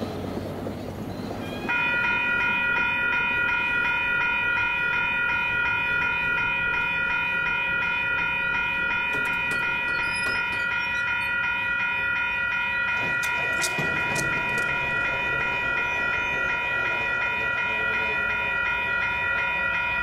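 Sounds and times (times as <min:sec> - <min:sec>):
diesel locomotive horn: 0:01.3 - 0:02.2.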